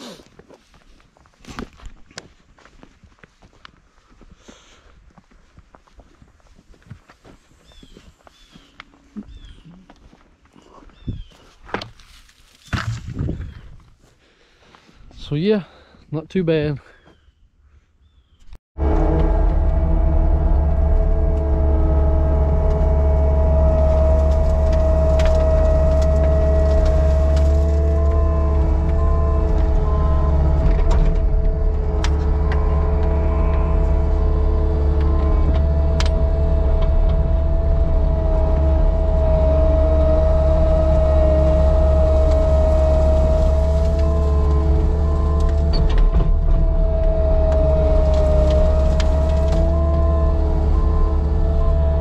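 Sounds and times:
diesel engine running: 0:18.8 - 0:52.0
steady whine: 0:18.8 - 0:52.0.

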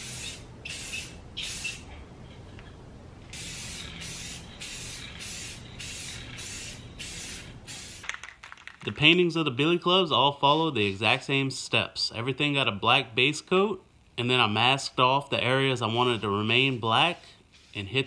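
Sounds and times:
aerosol spray can hissing: 0:00.0 - 0:01.8, 0:03.3 - 0:08.1, 0:16.0 - 0:18.0.

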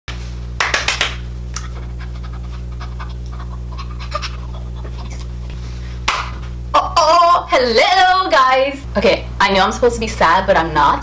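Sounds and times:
low electrical hum: 0:00.1 - 0:11.0
woman laughing faintly: 0:01.8 - 0:05.6.

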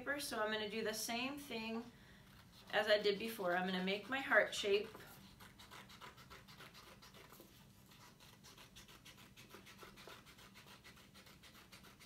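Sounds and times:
scissors cutting paper: 0:04.8 - 0:12.0.

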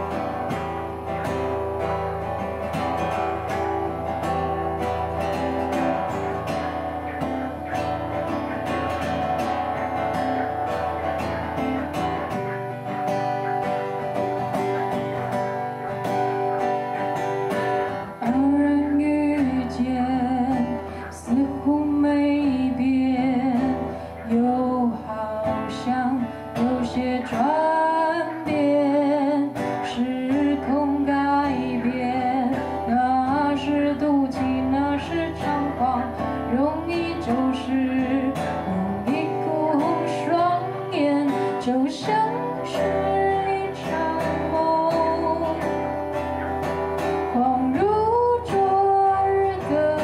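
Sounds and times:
acoustic guitar: 0:00.0 - 0:50.0
woman singing: 0:16.8 - 0:50.0.

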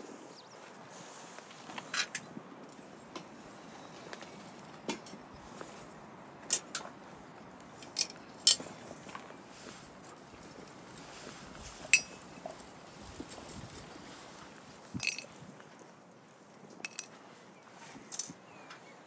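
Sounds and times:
metal grill and tongs clinking: 0:11.8 - 0:12.6, 0:15.0 - 0:15.3.

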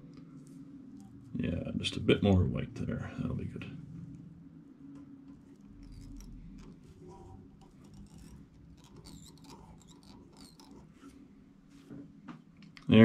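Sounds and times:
low steady hum: 0:00.0 - 0:13.0
thread wrapping from a bobbin: 0:05.2 - 0:11.2
small ticks and squeaks: 0:05.3 - 0:11.2.

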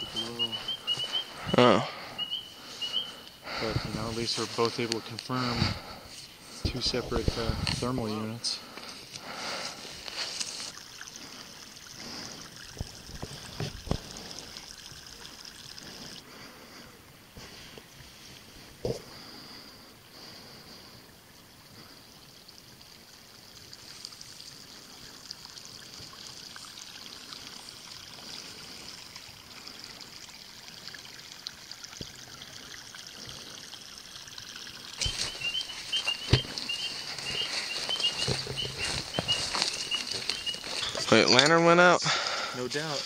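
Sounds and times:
repeated high chirps: 0:00.0 - 0:03.1, 0:35.0 - 0:41.1
people pushing through brush: 0:00.0 - 0:08.0, 0:08.8 - 0:10.8, 0:35.0 - 0:41.4
faint high hiss: 0:00.0 - 0:10.8
water trickling: 0:00.0 - 0:43.0.

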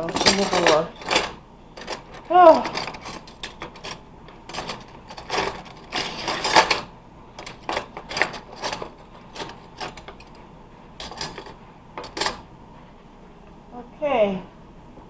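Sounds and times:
metal cutlery clinking: 0:00.0 - 0:10.4, 0:11.0 - 0:12.5.

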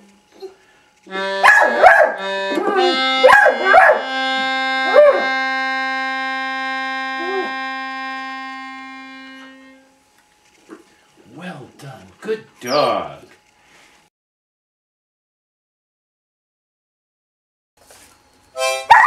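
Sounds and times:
dog howling: 0:01.4 - 0:04.1, 0:04.8 - 0:05.3, 0:07.2 - 0:07.6
reed wind instrument long note: 0:02.2 - 0:09.8.

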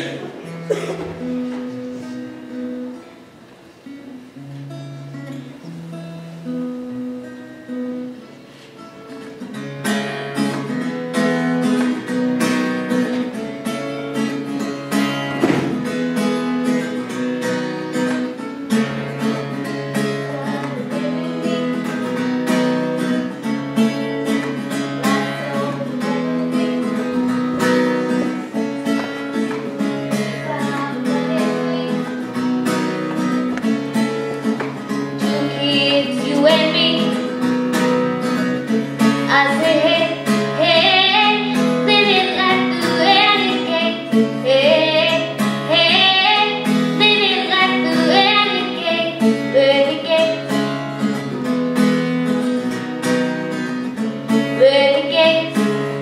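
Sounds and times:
acoustic guitar strumming: 0:00.0 - 0:56.0.

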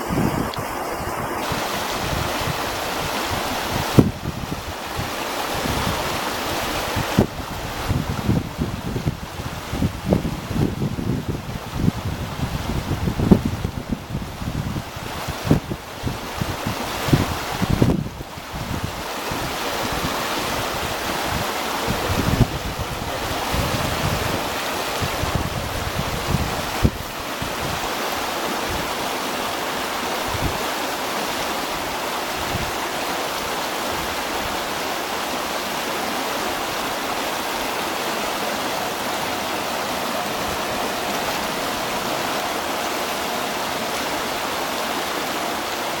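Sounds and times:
wind thumping on microphone: 0:00.0 - 0:30.7, 0:31.8 - 0:32.9
water rushing and splashing: 0:00.0 - 0:46.0.

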